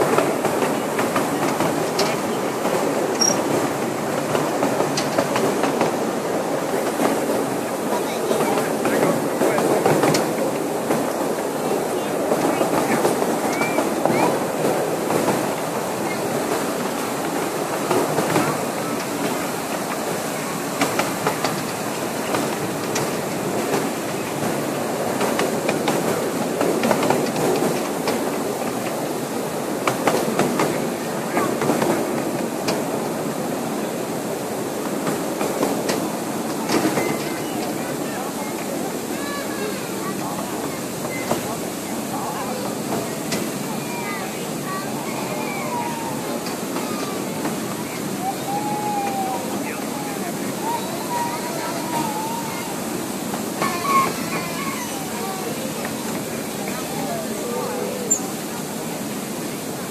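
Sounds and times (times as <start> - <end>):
railroad cars rumbling and clattering: 0.0 - 59.9
wheels clicking on rails: 0.0 - 59.9
high wheel squeal: 3.2 - 3.5.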